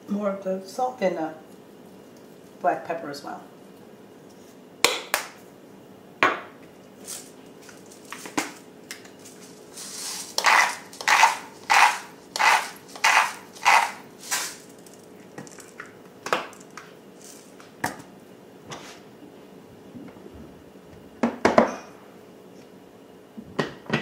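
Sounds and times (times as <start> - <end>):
spice grinder rasping: 7.1 - 15.8.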